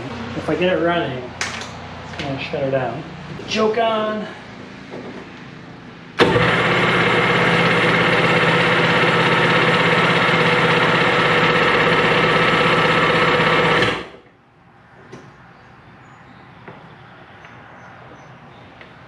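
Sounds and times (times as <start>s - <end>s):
engine cranking on electric starter: 6.2s - 14.2s.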